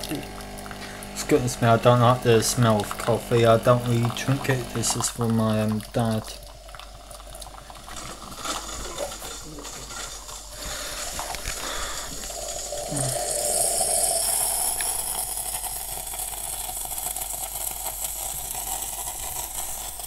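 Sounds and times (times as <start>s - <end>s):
coffee machine hissing steam: 0.0s - 20.0s.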